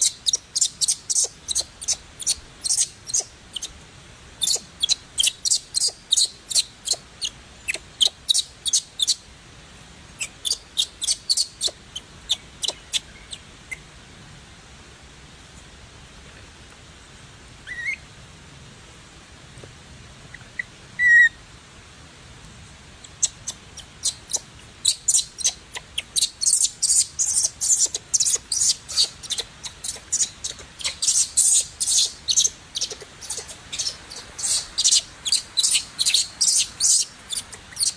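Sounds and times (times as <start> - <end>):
infant monkey squealing: 0.0 - 3.7, 4.4 - 9.2, 10.2 - 13.1, 17.7 - 18.0, 20.6 - 21.4, 23.1 - 37.9.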